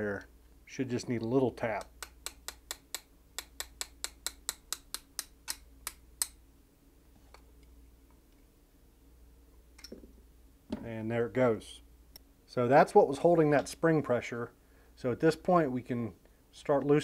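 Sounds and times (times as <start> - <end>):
rapid light metal taps: 1.2 - 6.4.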